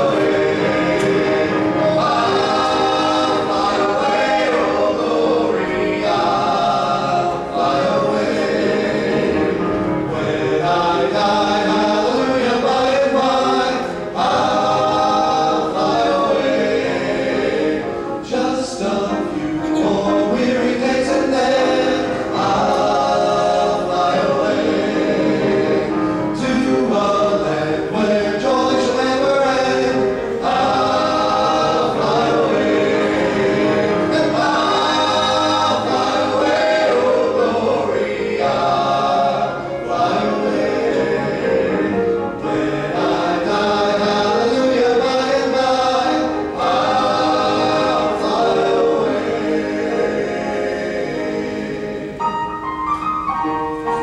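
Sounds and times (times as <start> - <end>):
male quartet singing hymns: 0.0 - 52.3
piano accompaniment: 0.0 - 54.0.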